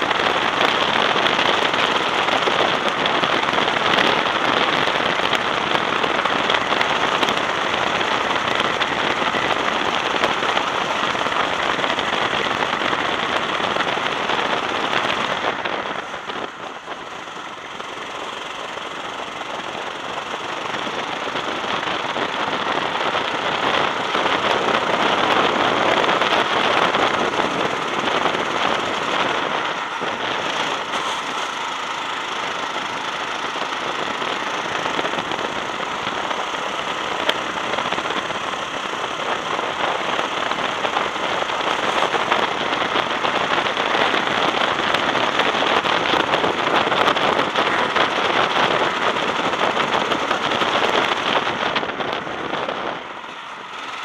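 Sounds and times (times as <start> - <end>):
crackling wind rush: 0.0 - 54.0
go-kart engine running: 0.0 - 54.0.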